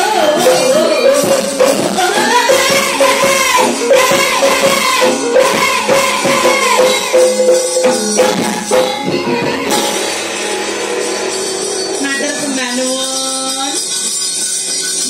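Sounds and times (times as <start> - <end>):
woman singing through microphone: 0.0 - 10.0
jingling metal percussion: 0.0 - 15.0
struck bronze gamelan instruments: 0.0 - 15.0.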